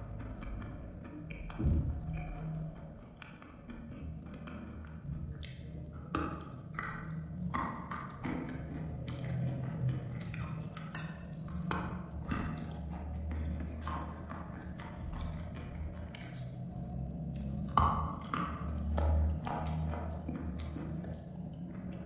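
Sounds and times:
low steady hum: 0.0 - 22.0
chewing chalk crunches: 9.2 - 22.0.

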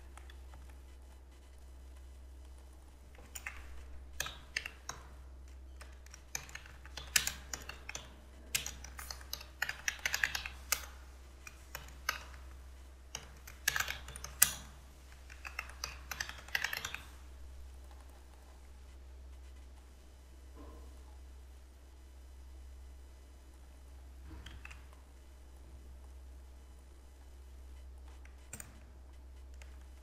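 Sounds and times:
computer keyboard typing: 2.4 - 17.2.

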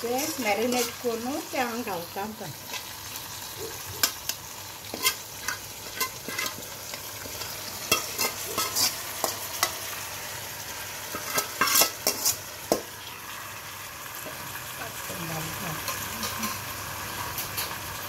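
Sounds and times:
metal scraping and tapping: 4.9 - 6.6, 11.1 - 12.8.

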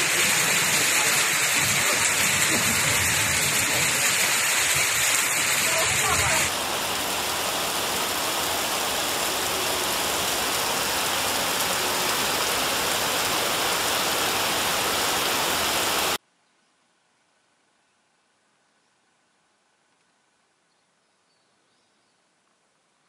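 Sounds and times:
heavy rain pouring: 0.0 - 16.2.

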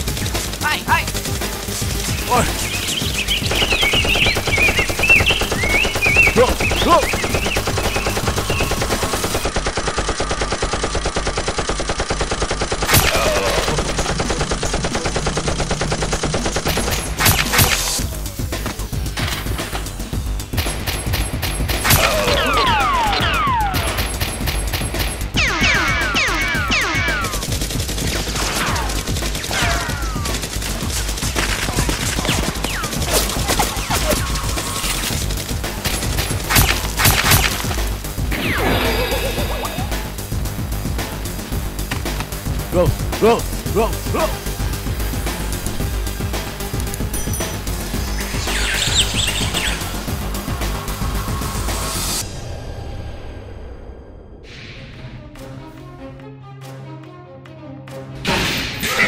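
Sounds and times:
rapid automatic gunfire: 0.0 - 18.1, 20.5 - 38.6
falling whistles: 2.6 - 8.8.

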